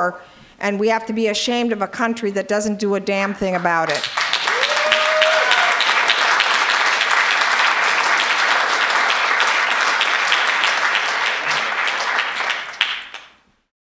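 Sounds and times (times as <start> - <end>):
audience applauding: 3.9 - 13.4.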